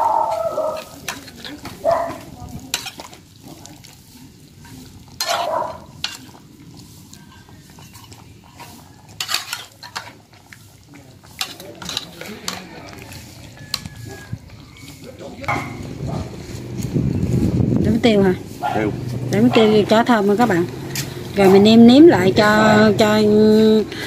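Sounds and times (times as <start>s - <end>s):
food sizzling in hot oil: 0.0s - 23.9s
utensil scraping and knocking pan: 8.6s - 10.2s, 11.3s - 16.4s.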